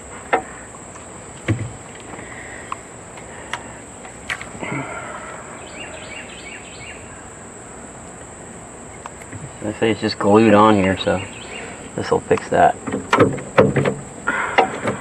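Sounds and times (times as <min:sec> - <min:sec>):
insects droning: 0:00.0 - 0:15.0
bird chirps: 0:05.2 - 0:07.3, 0:10.7 - 0:12.2.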